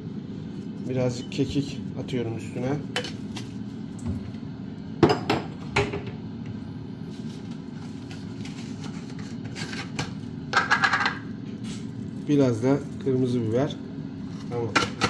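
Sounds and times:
air fryer humming: 0.0s - 15.0s
kitchen containers knocking: 10.6s - 11.2s.

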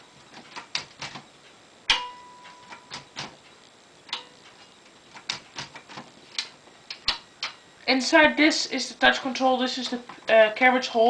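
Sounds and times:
typewriter clicks and clacks: 0.4s - 1.2s, 2.6s - 3.4s, 5.1s - 6.0s
metallic ring: 1.9s - 3.0s.

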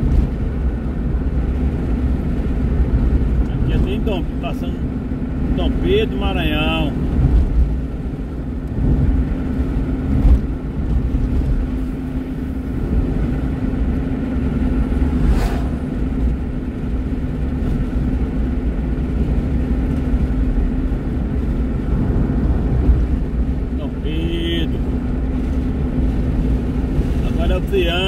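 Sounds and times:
car road and engine drone: 0.0s - 28.0s
truck passing whoosh: 7.0s - 19.5s.

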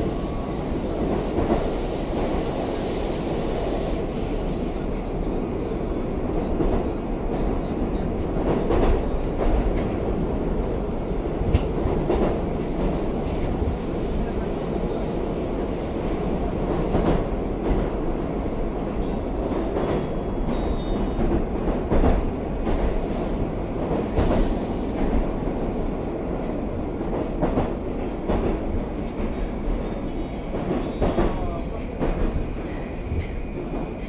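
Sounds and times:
train wheels rumbling on rails: 0.0s - 34.0s
train knocks: 11.3s - 15.0s, 19.4s - 23.1s.

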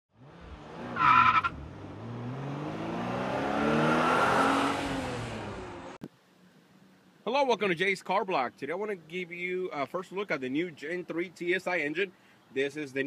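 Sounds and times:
car engine revving: 0.1s - 6.0s
tyre squeal: 1.0s - 1.5s.

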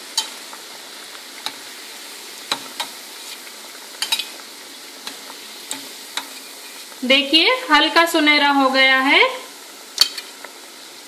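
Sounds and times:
food deep-frying sizzle: 0.0s - 11.0s.

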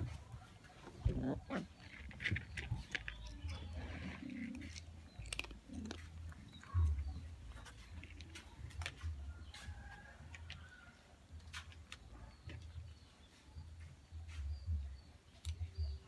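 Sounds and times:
cats crunching dry food: 1.6s - 9.2s.

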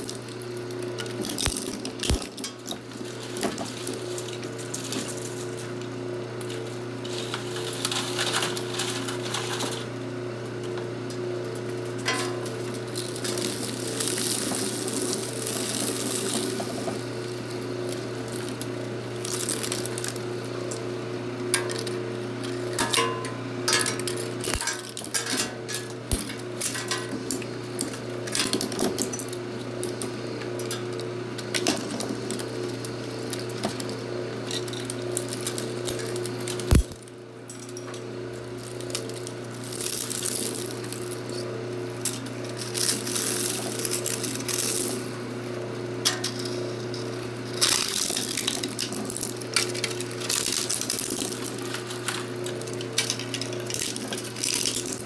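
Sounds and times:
plastic shreds clattering: 0.0s - 5.8s, 6.4s - 9.9s, 11.6s - 55.0s
shredder motor hum: 0.0s - 55.0s
plastic cracking and snapping: 0.1s - 2.4s, 34.6s - 37.0s, 47.6s - 55.0s.

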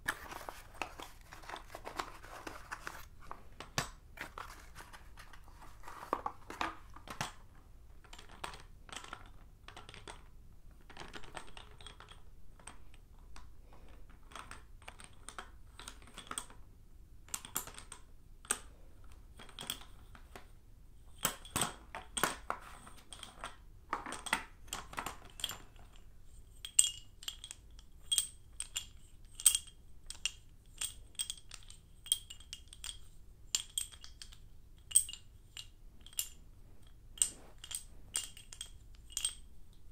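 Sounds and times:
chalk sticks clicking and knocking: 0.0s - 16.6s, 21.1s - 39.9s.

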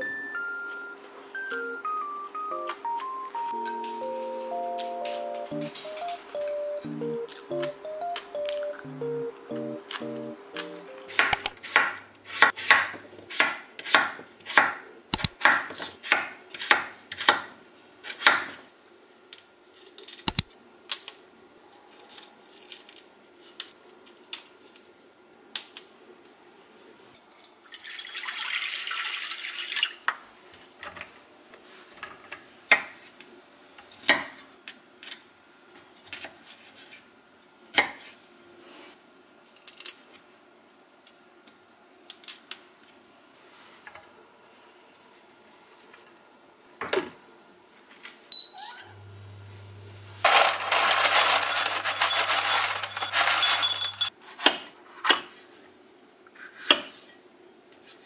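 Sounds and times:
knife chopping on cutting board: 11.1s - 17.5s.

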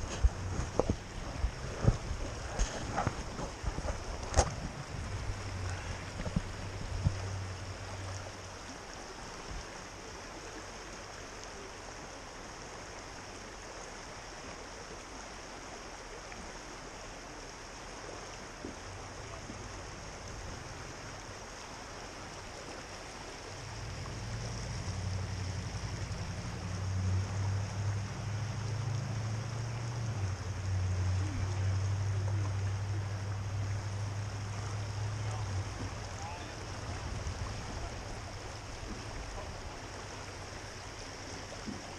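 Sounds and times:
wind buffeting microphone: 0.0s - 7.6s, 35.6s - 39.8s
river current rushing: 0.0s - 41.9s.

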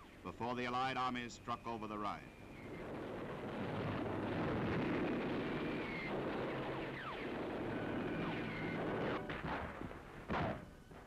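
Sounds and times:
low rumble of battle noise: 0.0s - 11.0s
falling whistles: 5.6s - 6.1s.

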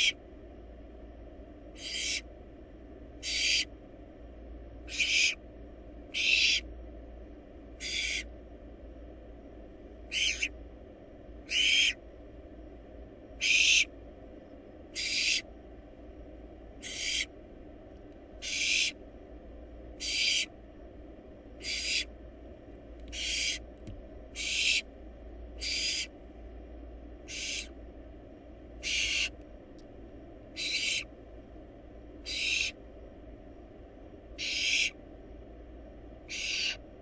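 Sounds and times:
owl chick rasping hiss: 0.0s - 0.2s, 1.7s - 2.3s, 3.2s - 3.7s, 4.9s - 5.4s, 6.1s - 6.7s, 7.8s - 8.3s, 10.1s - 10.6s, 11.4s - 12.0s, 13.4s - 13.9s, 14.9s - 15.5s, 16.8s - 17.3s, 18.4s - 19.0s, 20.0s - 20.5s, 21.6s - 22.1s, 23.1s - 23.7s, 24.3s - 24.9s, 25.6s - 26.1s, 27.2s - 27.8s, 28.8s - 29.4s, 30.5s - 31.1s, 32.2s - 32.8s, 34.4s - 35.0s, 36.3s - 36.8s
steady low hum: 0.0s - 37.0s.

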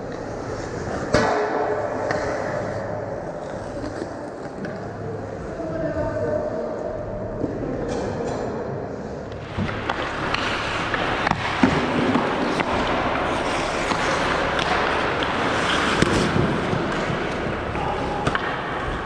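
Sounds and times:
hockey sticks and puck clacking: 0.0s - 2.8s, 9.3s - 19.0s
skates scraping ice: 0.0s - 5.5s, 9.4s - 19.0s.

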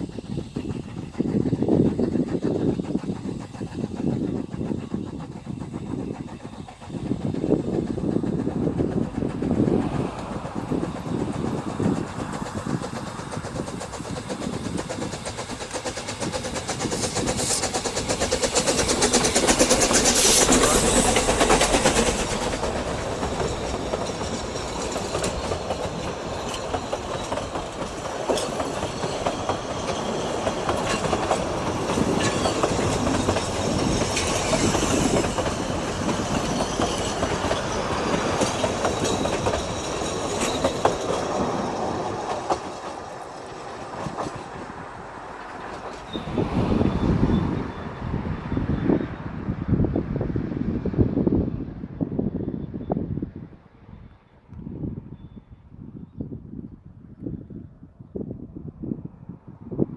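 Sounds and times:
coaches rolling on track: 0.0s - 52.5s
steam locomotive passing: 0.0s - 55.4s.

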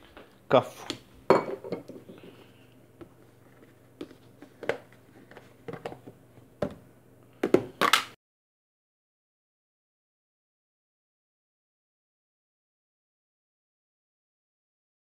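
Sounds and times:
plastic containers tapping and clicking: 4.0s - 6.8s.

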